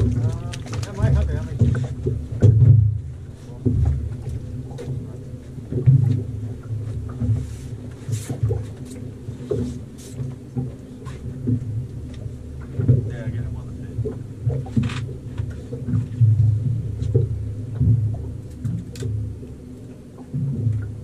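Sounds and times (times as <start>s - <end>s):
faint steady hum: 0.0s - 21.0s
small knocks and clicks: 14.1s - 16.2s.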